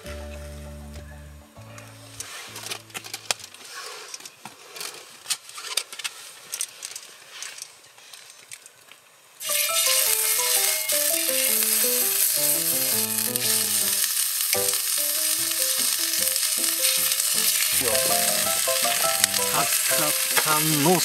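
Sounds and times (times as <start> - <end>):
background music melody: 0.0 - 3.6, 9.4 - 21.0
meat sizzling in frying pan: 9.4 - 21.0.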